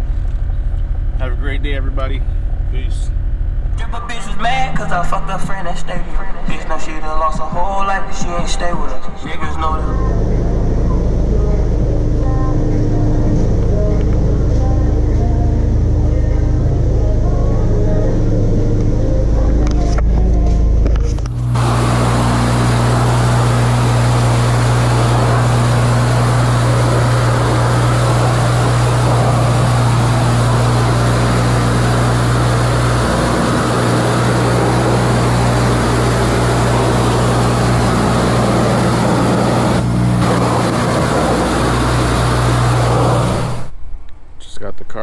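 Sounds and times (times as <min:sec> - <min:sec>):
pump humming: 0:09.9 - 0:43.8
pressure washer spraying water: 0:21.1 - 0:43.7.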